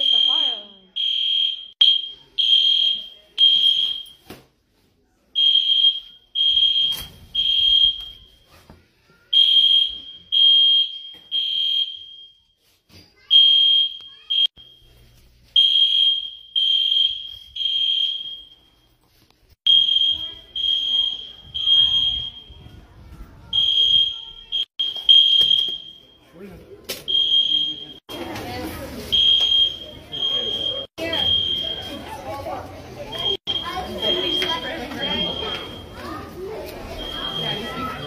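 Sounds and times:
fire alarm beeping: 0:00.0 - 0:04.3, 0:05.4 - 0:08.5, 0:09.3 - 0:12.7, 0:13.3 - 0:22.8, 0:23.5 - 0:32.2, 0:33.0 - 0:38.0.

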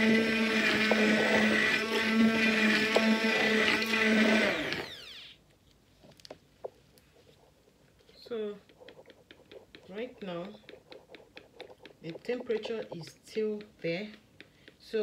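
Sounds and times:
stick blender motor humming: 0:00.0 - 0:05.4.

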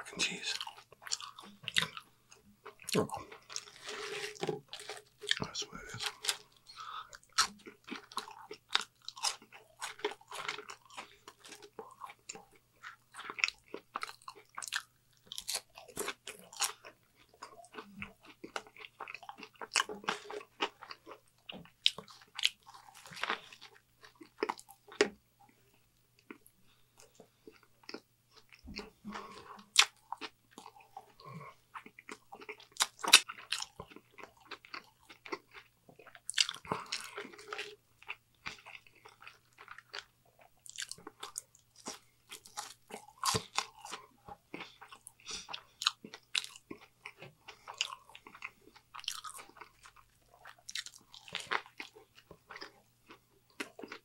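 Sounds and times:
person chewing crunchy food: 0:00.0 - 0:54.0.

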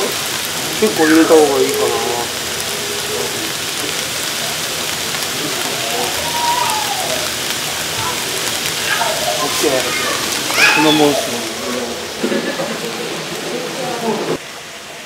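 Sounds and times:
water boiling in a pot: 0:00.0 - 0:15.0
faint voice: 0:00.7 - 0:12.2.

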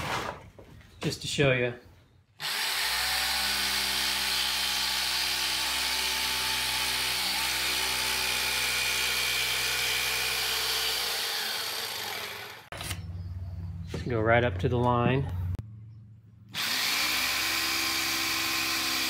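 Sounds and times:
jigsaw cutting plywood: 0:02.4 - 0:12.7, 0:16.6 - 0:19.0.

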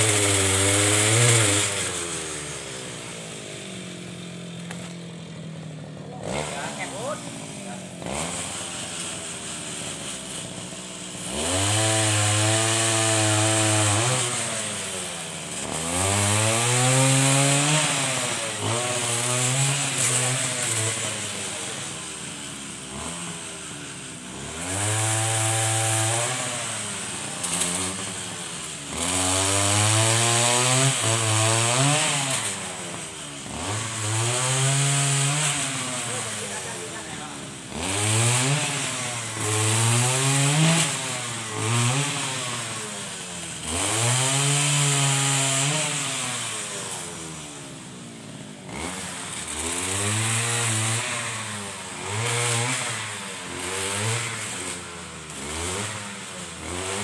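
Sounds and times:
brush cutter engine revving: 0:00.0 - 0:57.0.

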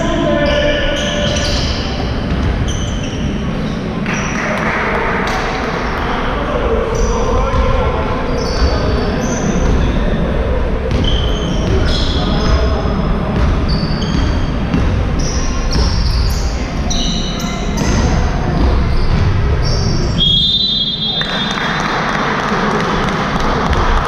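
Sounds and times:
shoes squeaking on hall floor: 0:00.0 - 0:04.6, 0:06.9 - 0:10.2, 0:10.9 - 0:21.6
basketball dribbling: 0:13.4 - 0:16.4.

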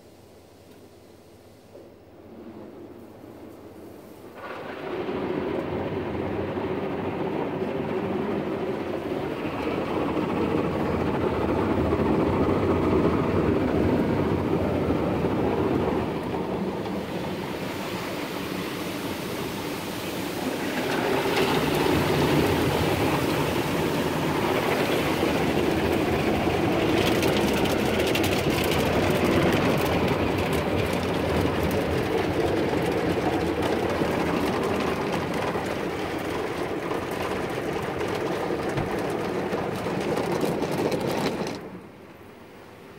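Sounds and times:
water spraying: 0:15.8 - 0:40.4.

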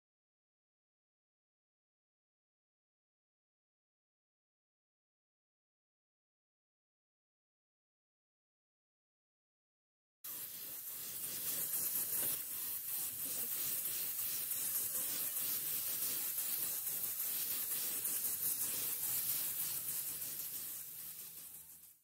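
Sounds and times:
spray paint hissing: 0:10.3 - 0:22.0.

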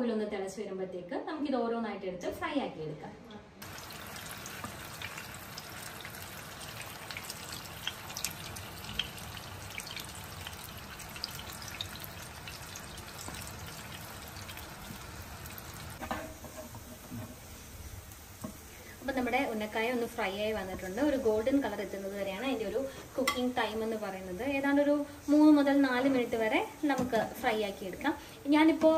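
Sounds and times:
oil crackling and popping: 0:03.6 - 0:18.9
food sizzling in hot oil: 0:03.6 - 0:28.9.

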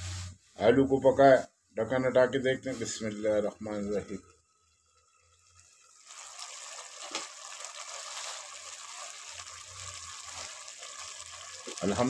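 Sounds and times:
curry boiling in a pot: 0:02.6 - 0:12.0.

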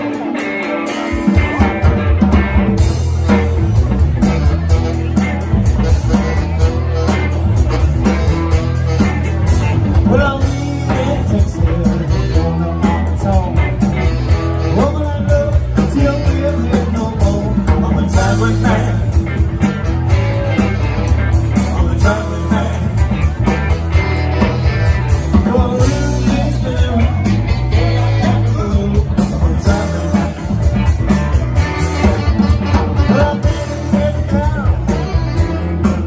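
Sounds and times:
bass guitar: 0:00.0 - 0:36.0
drums: 0:00.0 - 0:36.0
electric guitar: 0:00.0 - 0:36.0
person singing lead vocal: 0:09.9 - 0:19.4, 0:21.6 - 0:23.5, 0:25.2 - 0:31.3, 0:32.7 - 0:36.0.

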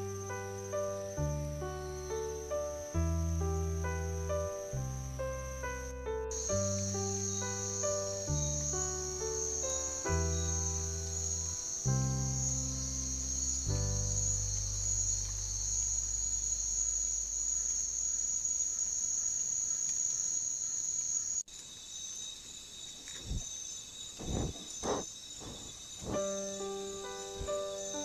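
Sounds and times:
insect high-pitched trill: 0:00.0 - 0:28.0
pulsing insect call: 0:00.0 - 0:28.0
low thumps: 0:24.2 - 0:28.0.

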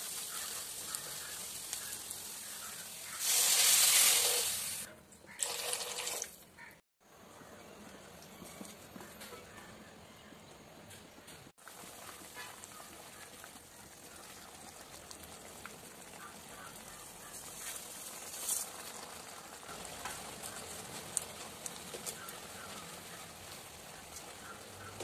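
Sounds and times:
broth simmering: 0:00.0 - 0:05.6, 0:11.6 - 0:25.0
wooden spatula stirring and tapping pan: 0:17.4 - 0:25.0.

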